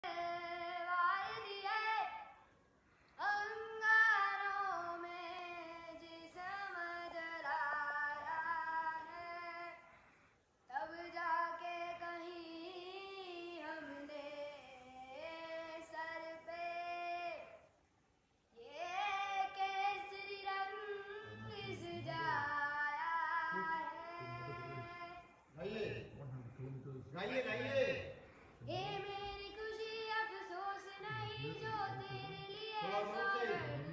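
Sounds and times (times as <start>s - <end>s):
child singing: 0.0s - 2.4s, 3.2s - 9.8s, 10.7s - 17.6s, 18.6s - 25.3s, 28.6s - 33.9s.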